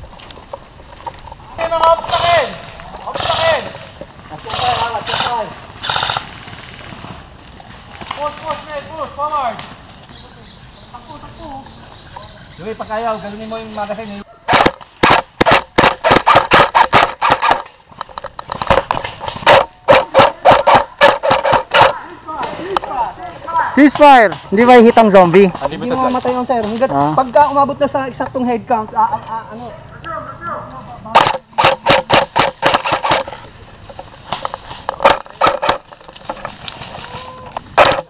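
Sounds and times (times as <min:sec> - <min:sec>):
airsoft guns firing single shots: 0:02.0 - 0:03.8, 0:14.5 - 0:17.8, 0:31.2 - 0:33.3
airsoft guns firing: 0:02.0 - 0:06.9, 0:14.5 - 0:17.8, 0:18.5 - 0:22.9, 0:31.1 - 0:33.4.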